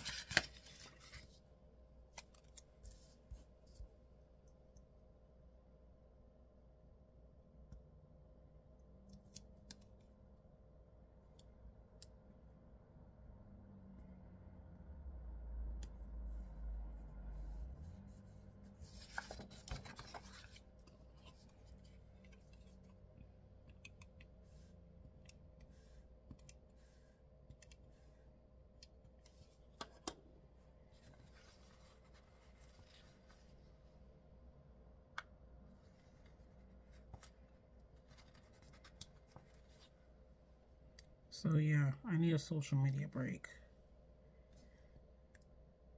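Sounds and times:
paper sliding: 17.4s - 20.6s.

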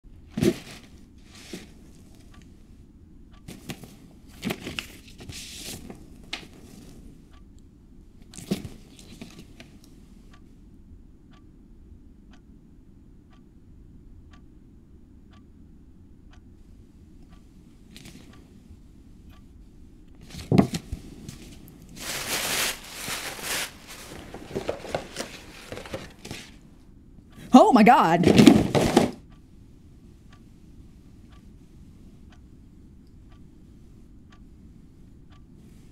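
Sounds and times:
tissue paper rustling: 21.5s - 26.6s.

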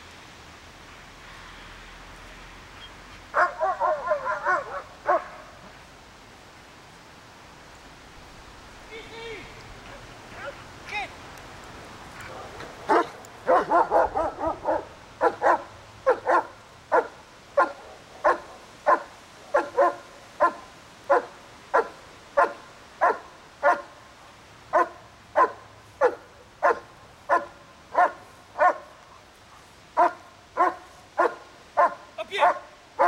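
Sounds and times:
dog barking: 3.3s - 5.5s, 12.2s - 23.9s, 24.7s - 29.0s, 30.0s - 33.0s.

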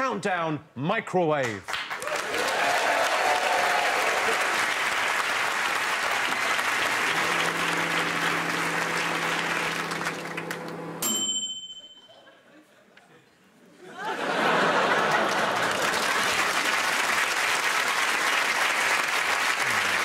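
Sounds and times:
audience applauding: 1.7s - 11.0s, 14.3s - 20.0s
steady low hum: 6.6s - 11.0s.

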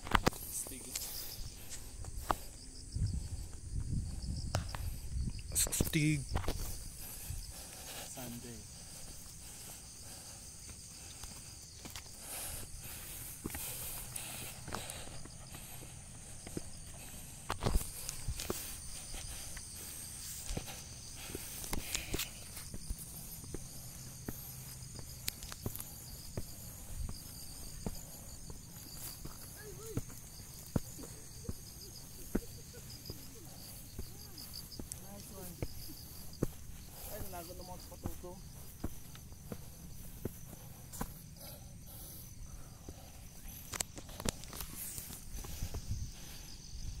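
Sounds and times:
footsteps on dirt trail: 0.0s - 47.0s
insects chirring: 0.0s - 47.0s
footsteps rustling through grass: 30.4s - 41.5s.

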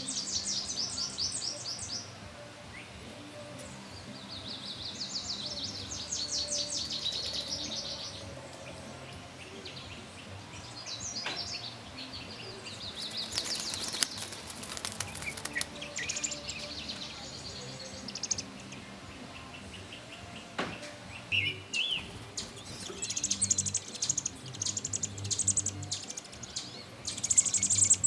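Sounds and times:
bird nestlings chirping: 21.2s - 28.0s.

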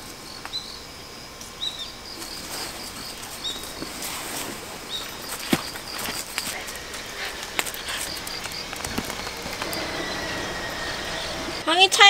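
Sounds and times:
faint insect trill: 0.0s - 12.0s
small bird chirping: 0.2s - 11.7s
rustling in dry leaves: 2.1s - 11.6s.

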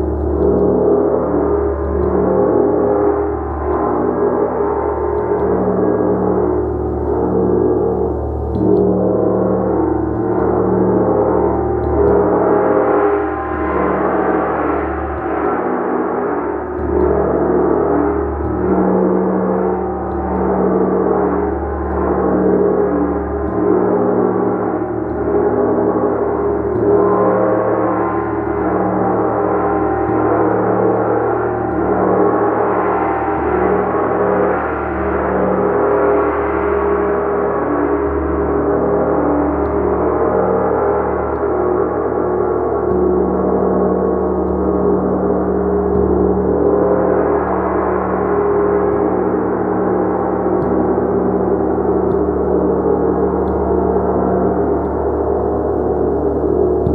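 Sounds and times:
gong played with a mallet: 0.0s - 56.9s.

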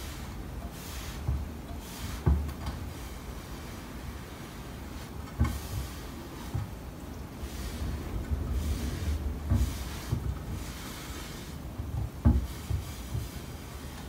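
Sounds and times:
low rumble: 7.1s - 11.5s.

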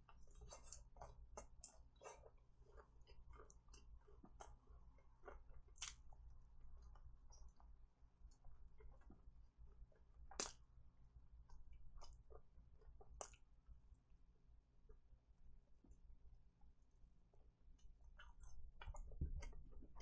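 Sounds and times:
chewing chicken: 0.0s - 13.8s, 17.7s - 20.0s
wet lip smacks and mouth clicks: 5.3s - 6.2s.

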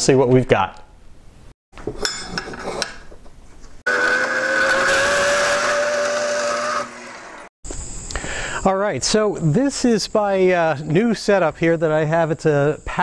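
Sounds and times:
electric cutting tool whining: 3.9s - 7.5s.

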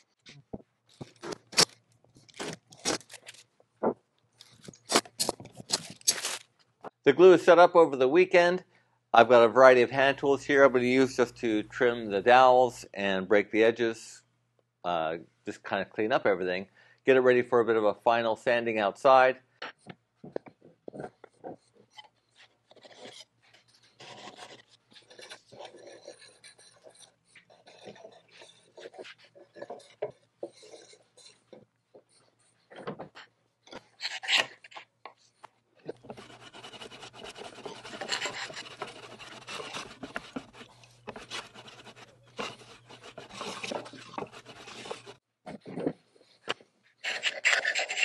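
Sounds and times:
hand tools rasping wood: 36.0s - 45.2s.

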